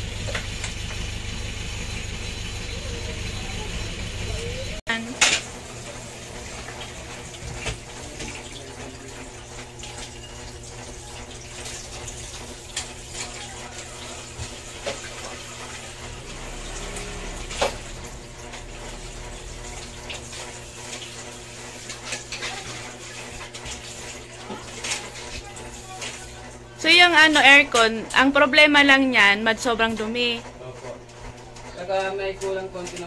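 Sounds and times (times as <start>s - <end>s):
running water rushing: 5.5s - 26.9s.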